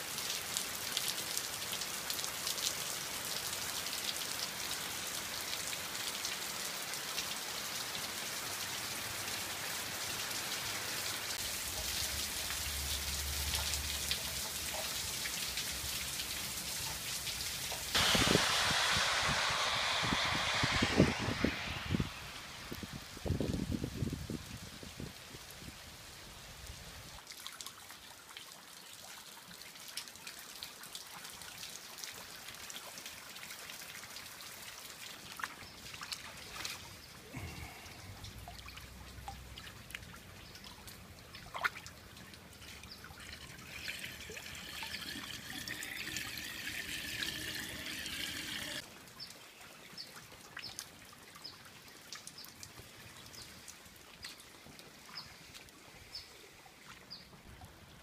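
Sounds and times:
heavy rain: 0:00.0 - 0:26.7, 0:37.2 - 0:39.5
water dripping: 0:10.4 - 0:19.2, 0:27.2 - 0:56.2
water running and pouring: 0:41.3 - 0:48.8.

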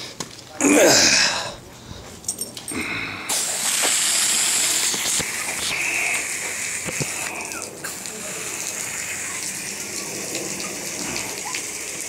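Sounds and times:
hose nozzle spraying water: 0:03.3 - 0:12.0.

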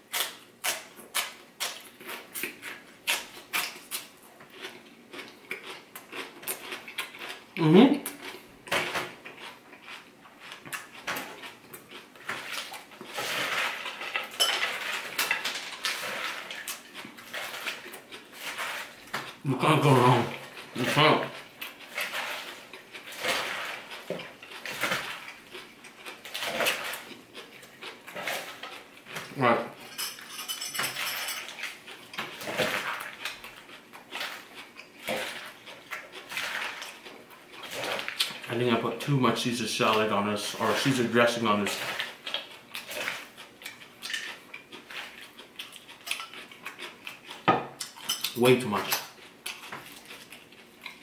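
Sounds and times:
mouth chewing with crunches: 0:00.0 - 0:30.3, 0:31.1 - 0:51.0
metal tongs clinking in salad bowl: 0:29.8 - 0:31.7
lettuce leaves rustling: 0:38.0 - 0:42.2.

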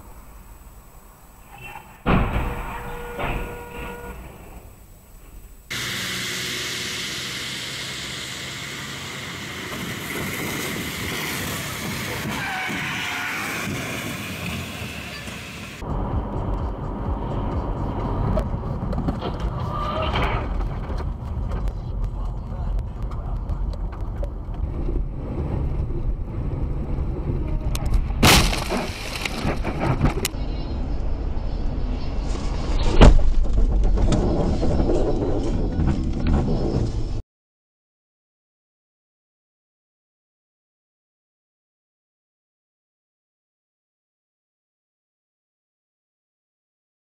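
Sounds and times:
faint road rumble: 0:00.0 - 0:37.2
low engine hum: 0:15.8 - 0:28.2.

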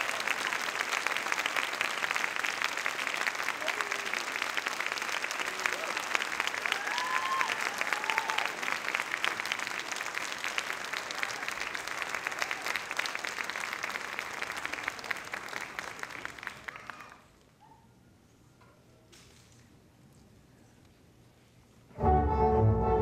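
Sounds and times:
audience applauding: 0:00.0 - 0:17.4.

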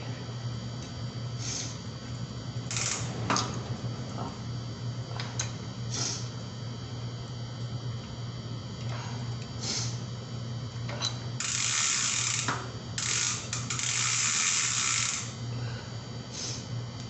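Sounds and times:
bicycle freewheel ratchet clicking: 0:02.7 - 0:03.1, 0:11.4 - 0:15.4.

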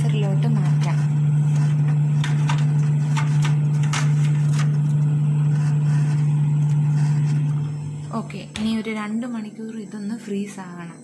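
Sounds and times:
refrigerator hum: 0:00.0 - 0:11.0
ice tray clicking and knocking: 0:01.6 - 0:04.9.

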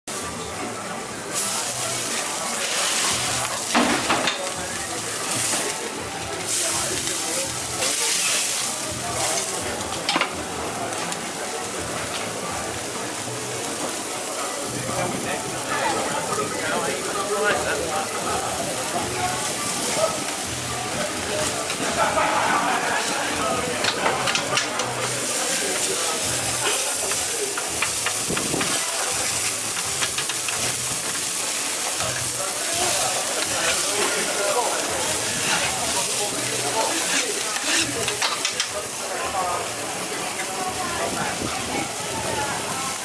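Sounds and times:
patties sizzling on a griddle: 0:00.1 - 0:43.0
metal scraper on griddle: 0:26.6 - 0:31.2, 0:31.9 - 0:38.7.

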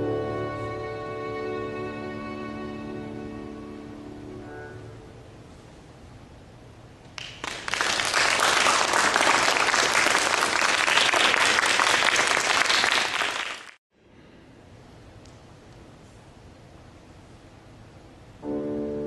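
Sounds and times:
large crowd applauding: 0:07.2 - 0:13.8.

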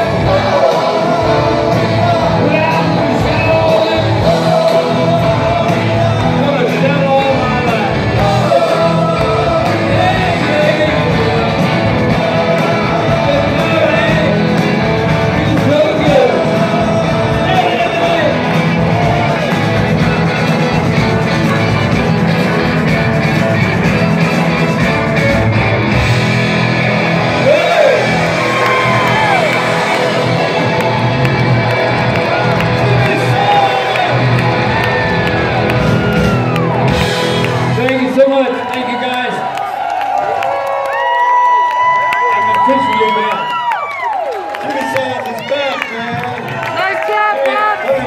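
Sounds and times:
man singing: 0:00.0 - 0:19.5, 0:32.8 - 0:34.3
rock band playing: 0:00.0 - 0:40.6.

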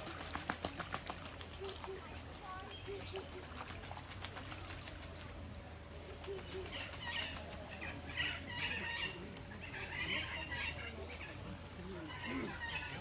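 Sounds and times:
faint low hum: 0:00.0 - 0:13.0
birds chirping and calling: 0:06.2 - 0:13.0.

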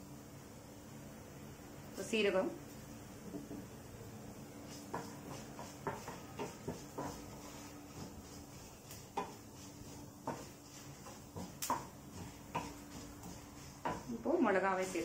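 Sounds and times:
faint steady hum: 0:00.0 - 0:15.0
wooden spatula scraping a pan: 0:04.6 - 0:15.0.

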